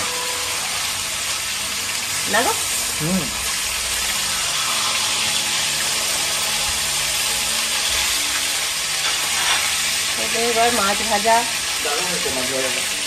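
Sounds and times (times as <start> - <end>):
fish sizzling in hot oil: 0.0 - 13.0.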